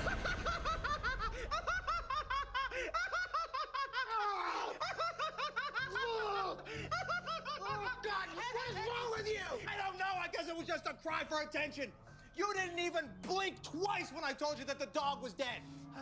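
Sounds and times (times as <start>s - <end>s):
man laughing hard: 0.0s - 9.4s.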